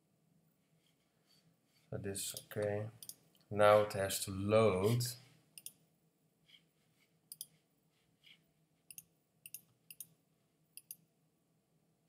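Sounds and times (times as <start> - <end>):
computer mouse clicking: 7.3 - 7.6, 8.9 - 10.1, 10.8 - 11.0.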